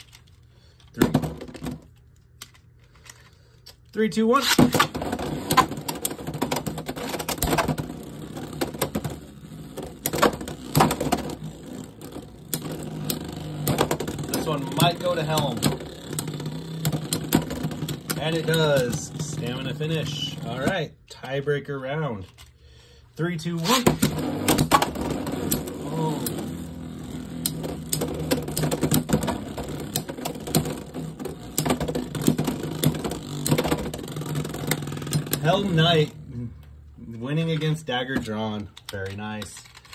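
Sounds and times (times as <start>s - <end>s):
spinning tops whirring in plastic stadium: 4.6s - 20.8s, 23.5s - 36.4s.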